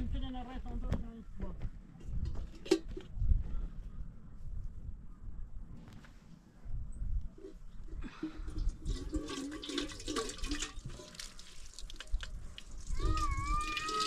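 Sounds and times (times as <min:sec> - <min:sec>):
water running into a kettle: 0:08.5 - 0:14.0.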